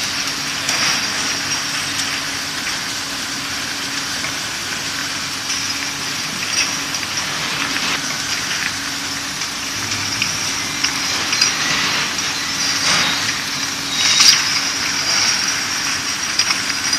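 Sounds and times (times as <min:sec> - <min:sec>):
machine hum and hiss: 0:00.0 - 0:16.9
loud rush of noise: 0:05.6 - 0:16.9
glass bottles clinking: 0:08.0 - 0:16.9.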